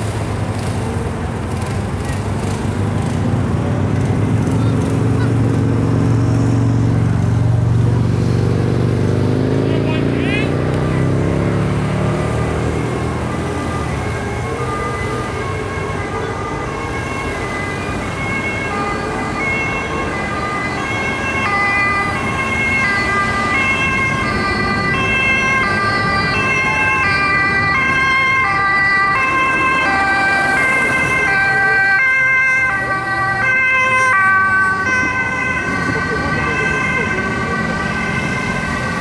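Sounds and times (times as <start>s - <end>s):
passing road traffic: 0.0s - 39.0s
ambulance two-tone siren: 9.7s - 39.0s.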